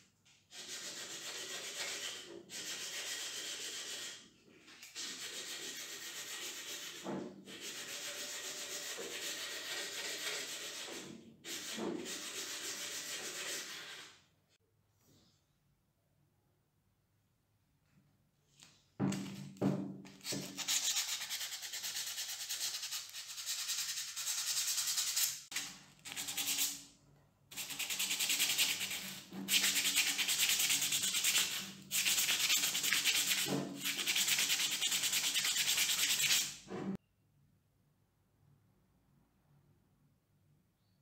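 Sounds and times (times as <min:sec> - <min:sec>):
sandpaper rubbing on metal: 0:00.5 - 0:04.2, 0:04.9 - 0:14.2, 0:20.2 - 0:26.8, 0:27.5 - 0:36.6.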